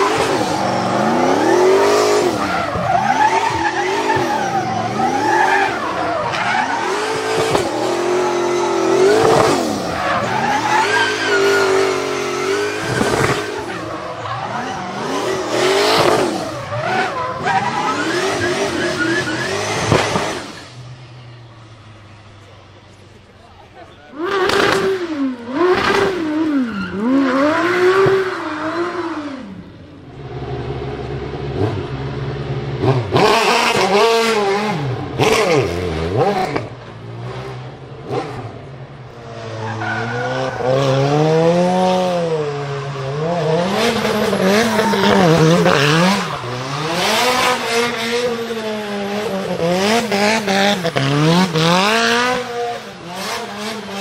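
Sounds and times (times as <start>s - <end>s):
race car engines revving: 0.0s - 54.0s
tyres squealing: 0.5s - 20.6s.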